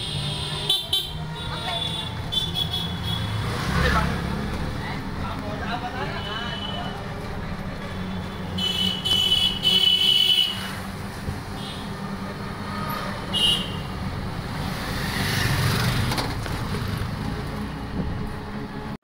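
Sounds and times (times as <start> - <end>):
vehicle engine drone: 10.5 - 19.0.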